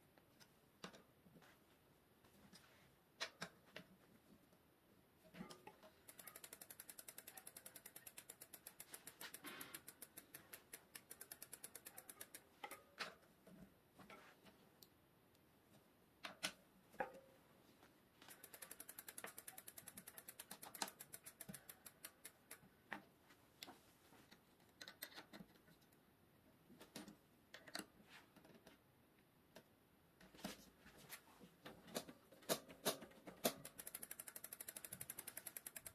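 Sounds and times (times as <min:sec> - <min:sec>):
bicycle freehub ticking: 0:06.0 - 0:12.8, 0:18.3 - 0:22.6, 0:33.4 - 0:35.9.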